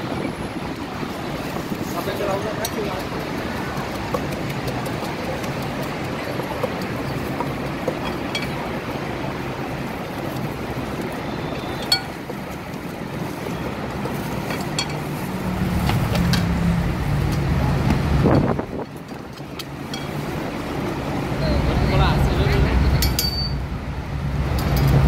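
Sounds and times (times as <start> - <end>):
road traffic roar: 0.0 - 25.0
heavy vehicle passing: 8.6 - 19.0
sharp clinks: 23.0 - 23.6.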